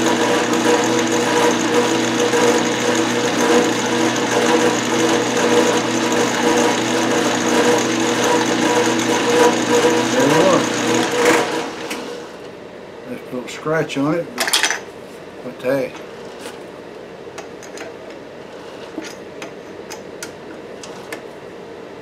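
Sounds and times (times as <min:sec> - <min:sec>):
lathe tool cutting metal: 0:00.0 - 0:12.3
metal lathe whirring: 0:00.0 - 0:12.4.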